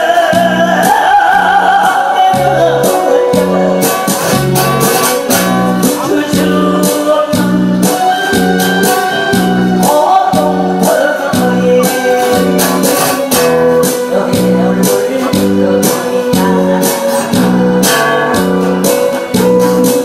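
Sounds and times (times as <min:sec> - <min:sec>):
acoustic guitar strumming: 0:00.0 - 0:20.0
person singing: 0:00.0 - 0:20.0
hand drum beat: 0:01.8 - 0:09.8.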